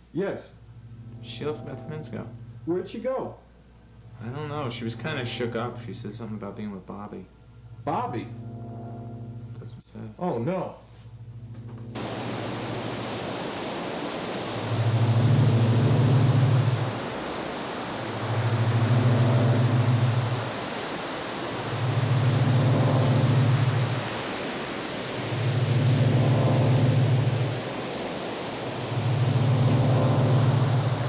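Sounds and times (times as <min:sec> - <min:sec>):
low drone: 0:00.0 - 0:31.0
wind: 0:00.0 - 0:31.0
surf rushing: 0:11.6 - 0:31.0.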